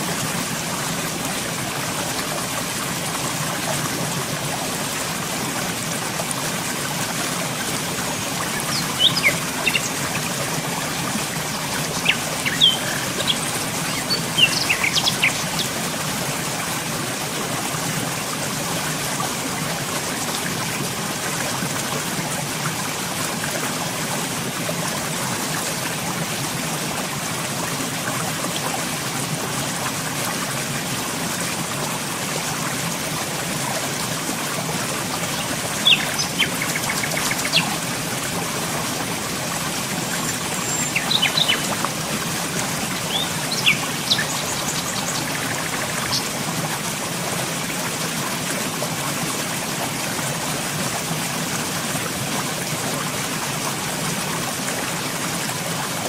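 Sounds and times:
flowing water: 0.0s - 56.0s
birds chirping: 8.4s - 10.0s, 11.8s - 15.8s, 35.3s - 37.7s, 40.2s - 41.8s, 42.8s - 46.3s.

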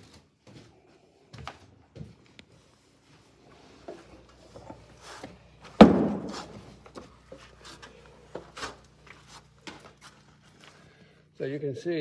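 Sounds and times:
soft knocks and scuffs: 0.4s - 10.8s
loud sudden thump: 5.8s - 6.5s.

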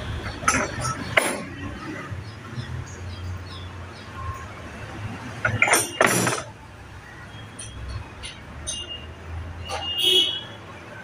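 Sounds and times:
metal tools clinking: 5.4s - 6.5s, 7.5s - 9.0s.

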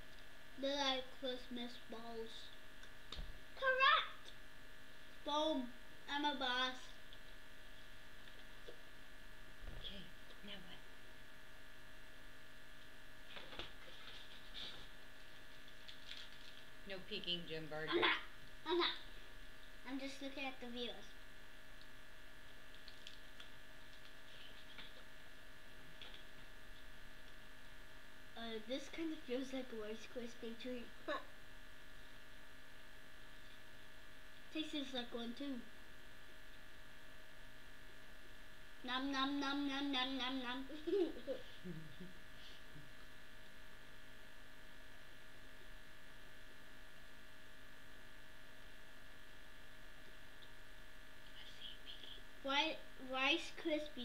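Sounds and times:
electrical hum: 0.0s - 54.0s
soft rustle: 12.8s - 16.9s.

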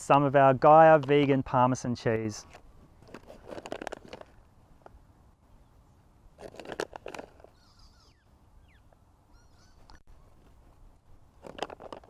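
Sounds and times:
plastic pouch crinkling: 3.0s - 4.4s, 6.4s - 7.5s, 11.4s - 12.0s
birds calling faintly: 7.3s - 11.4s.

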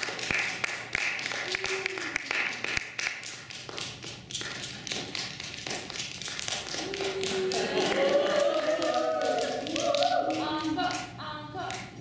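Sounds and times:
audience applauding: 0.0s - 3.4s, 5.0s - 10.6s.

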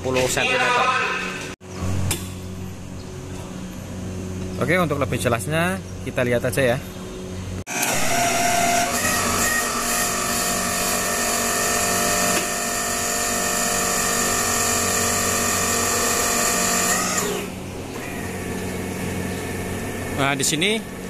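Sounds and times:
hydraulic pump motor whining: 7.7s - 20.0s.

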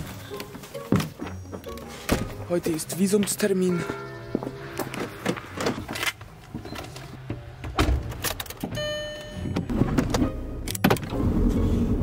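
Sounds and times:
electronic dashboard chime: 8.8s - 9.7s.

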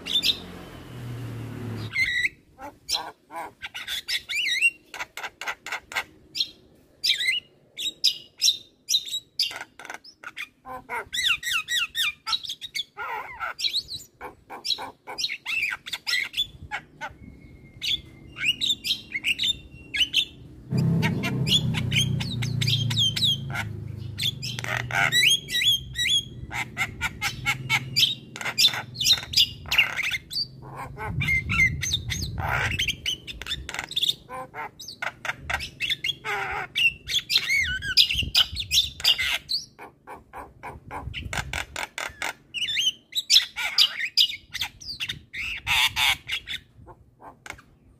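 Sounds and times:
bird singing with clicks and whistles: 0.0s - 1.0s, 1.8s - 14.1s, 14.7s - 30.6s, 31.2s - 39.8s.

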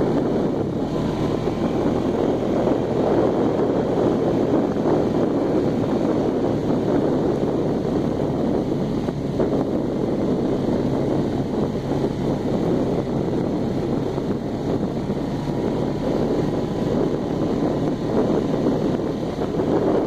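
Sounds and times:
quad bike engine running: 0.0s - 20.0s
wind buffeting microphone: 0.0s - 20.0s.

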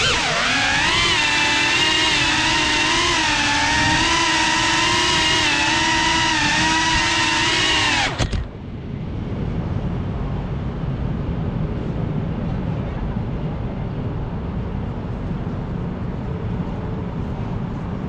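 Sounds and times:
drone motors whining: 0.0s - 8.6s
low background rumble: 0.0s - 18.0s.

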